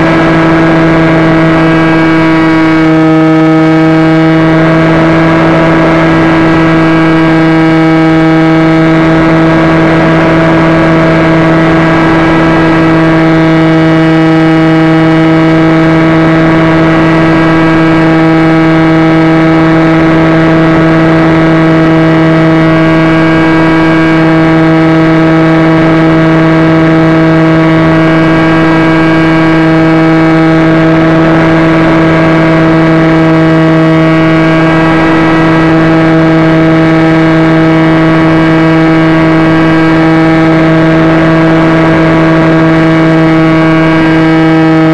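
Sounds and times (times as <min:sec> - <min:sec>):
model airplane motor droning: 0:00.0 - 0:44.9.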